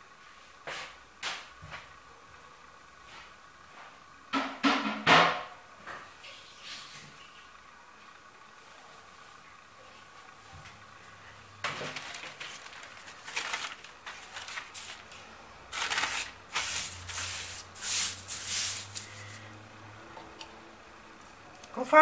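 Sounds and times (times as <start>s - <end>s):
paper rustling and crinkling: 11.6s - 19.4s.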